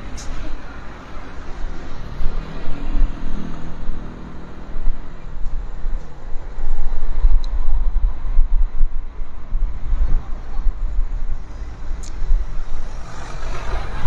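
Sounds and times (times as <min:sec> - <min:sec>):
cars moving: 0:00.0 - 0:14.0
heavy uneven low rumble: 0:00.0 - 0:14.0
motor scooter engine passing: 0:12.5 - 0:14.0.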